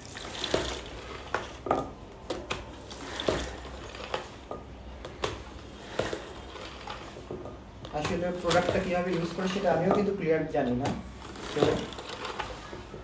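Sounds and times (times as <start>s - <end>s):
water squeezed out and dripping: 0.0s - 1.6s.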